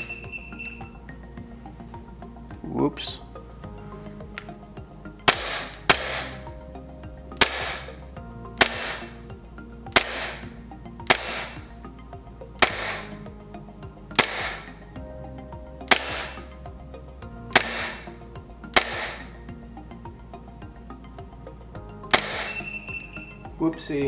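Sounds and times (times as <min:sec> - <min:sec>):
background music: 0:00.0 - 0:24.0
airsoft pistol cracks with hiss: 0:08.6 - 0:09.0, 0:10.0 - 0:10.4, 0:14.2 - 0:14.6, 0:18.8 - 0:19.2.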